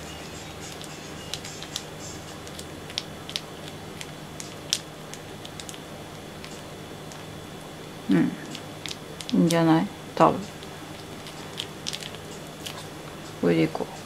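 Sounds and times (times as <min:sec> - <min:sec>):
plastic bag crinkling: 0:00.6 - 0:07.3, 0:08.4 - 0:09.8, 0:10.4 - 0:13.1.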